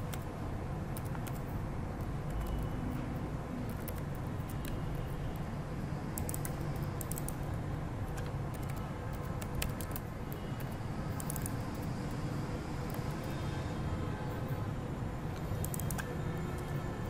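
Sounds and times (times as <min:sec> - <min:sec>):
keyboard typing clicks: 0:00.9 - 0:03.0, 0:03.7 - 0:05.0, 0:06.2 - 0:07.5, 0:08.1 - 0:11.9, 0:15.4 - 0:16.8.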